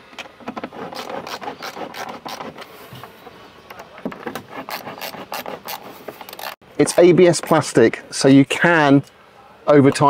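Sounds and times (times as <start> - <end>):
screws scraping and creaking in plastic: 0.2 - 7.0.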